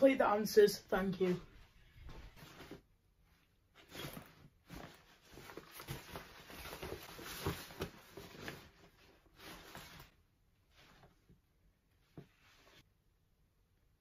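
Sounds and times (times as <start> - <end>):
nylon backpack rustling: 3.7 - 10.2.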